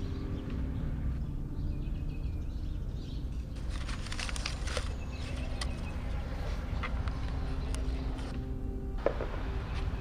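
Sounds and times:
paper slips rustling in plastic bowl: 0:03.6 - 0:05.7.

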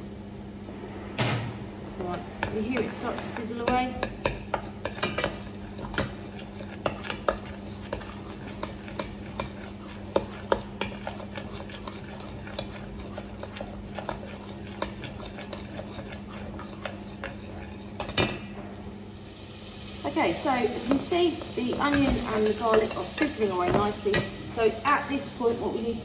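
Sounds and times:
spoon scraping a saucepan: 0:02.4 - 0:18.4, 0:21.8 - 0:24.4
onion and garlic sizzling: 0:19.1 - 0:26.0.

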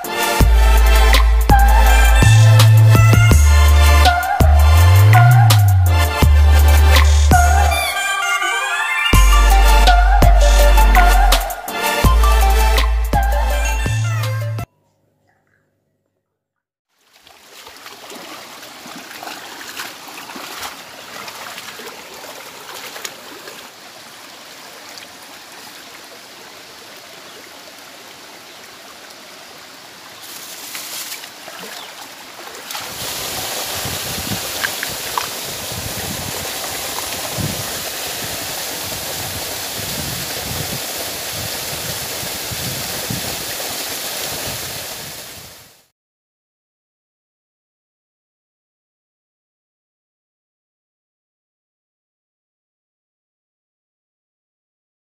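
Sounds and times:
person wading through water: 0:16.9 - 0:44.7
stream running over stones: 0:16.9 - 0:45.9.

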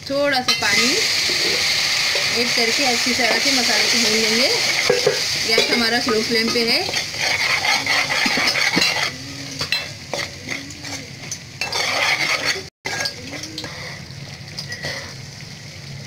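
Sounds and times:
paste sizzling in oil: 0:00.1 - 0:16.0
metal spoon scraping a pot: 0:04.5 - 0:13.8
spoon clinking against pot: 0:04.8 - 0:10.6.

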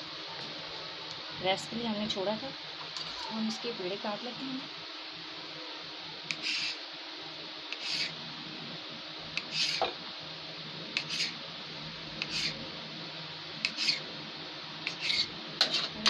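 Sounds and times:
knife scraping dough: 0:06.3 - 0:06.8, 0:07.7 - 0:08.2, 0:09.4 - 0:09.9, 0:11.0 - 0:11.4, 0:12.2 - 0:12.6, 0:13.7 - 0:14.0, 0:14.9 - 0:16.0.

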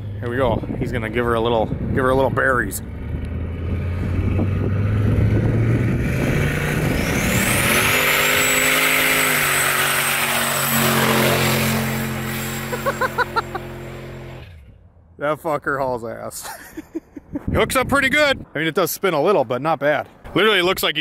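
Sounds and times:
truck engine accelerating: 0:00.0 - 0:15.1.

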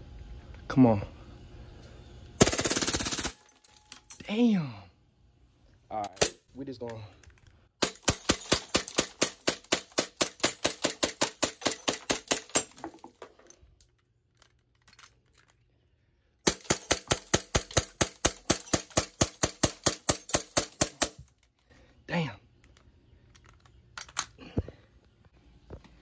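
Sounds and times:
airsoft pistol rapid shots: 0:07.8 - 0:12.4.

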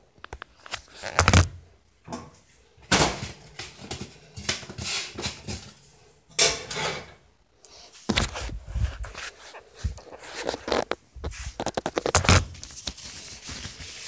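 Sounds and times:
metal cookware clattering: 0:06.3 - 0:07.2.

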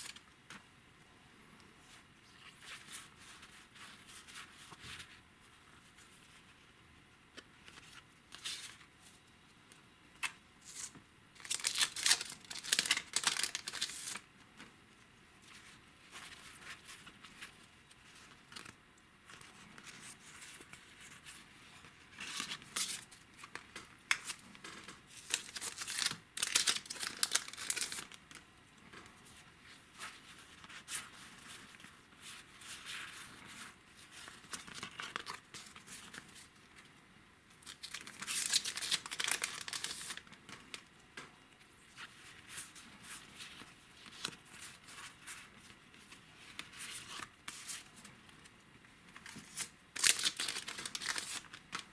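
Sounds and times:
cards rustling and flicking: 0:22.2 - 0:28.2, 0:49.1 - 0:51.9.

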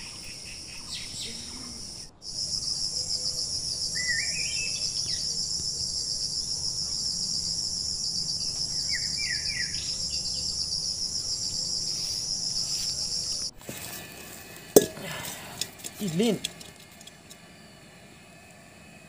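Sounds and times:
short rising chirps: 0:00.0 - 0:13.5
insect chorus: 0:00.0 - 0:19.0.

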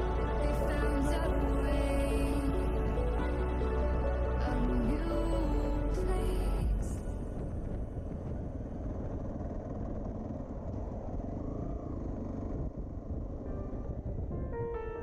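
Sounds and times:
background music: 0:00.0 - 0:07.5
wind and road noise: 0:00.0 - 0:15.0
motorcycle engine running: 0:06.8 - 0:14.2.

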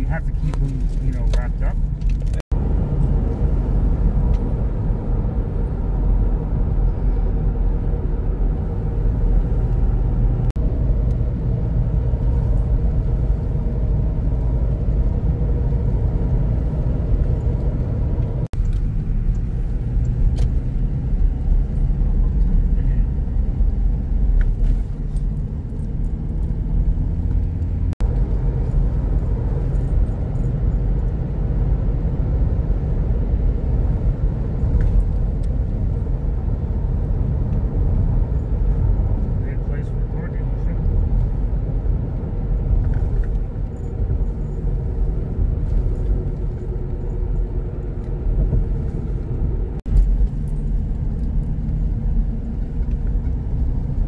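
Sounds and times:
road and engine rumble in car: 0:00.0 - 0:54.0.

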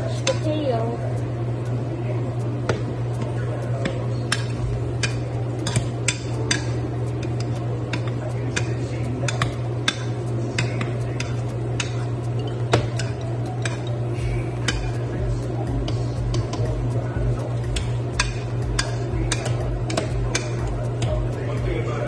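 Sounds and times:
steady low hum: 0:00.0 - 0:22.0
potato masher clacking in metal pot: 0:17.8 - 0:21.1.

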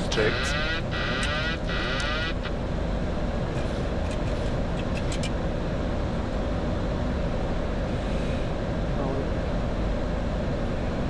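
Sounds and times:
pulsing warning tone: 0:00.0 - 0:02.5
cockpit airflow and engine noise: 0:00.0 - 0:11.0.

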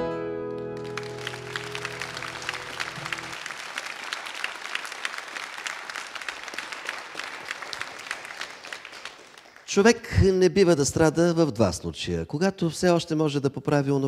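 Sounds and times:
audience applauding: 0:00.6 - 0:10.1.

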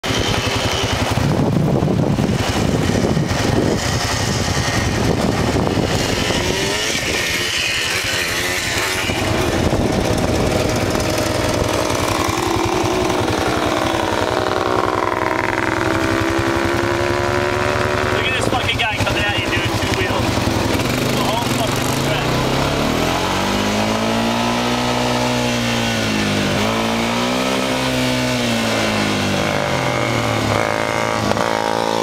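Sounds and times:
quad engine revving: 0:00.0 - 0:32.0
wind buffeting microphone: 0:00.6 - 0:07.5, 0:08.4 - 0:23.5.

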